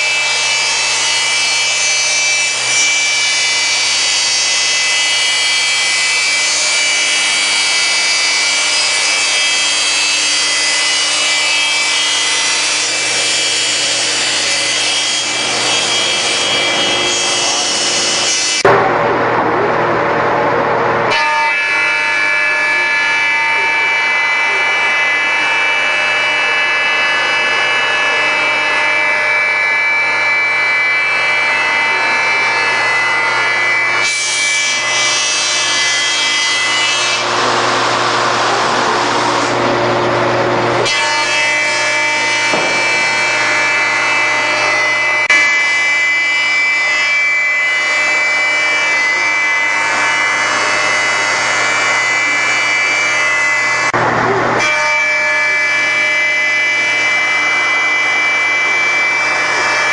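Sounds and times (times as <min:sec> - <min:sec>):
belt sander drone: 0:00.0 - 0:59.9.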